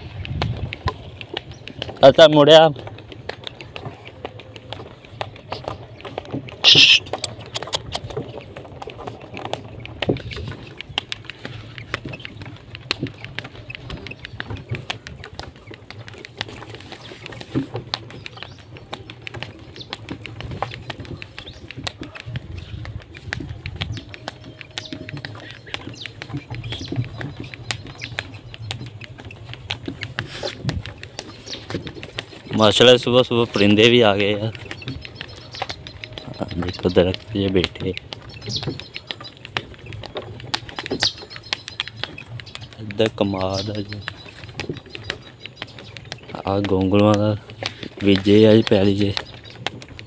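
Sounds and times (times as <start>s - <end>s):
wooden cart rattling and knocking: 0.0s - 50.0s
faint bird chirps: 6.6s - 7.8s.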